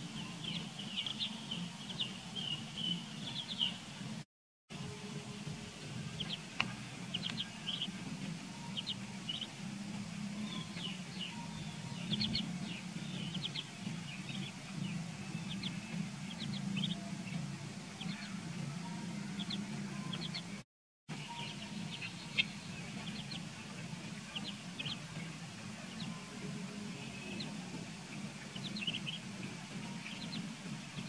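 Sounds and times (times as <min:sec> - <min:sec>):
ducklings peeping: 0:00.0 - 0:04.2, 0:05.8 - 0:31.0.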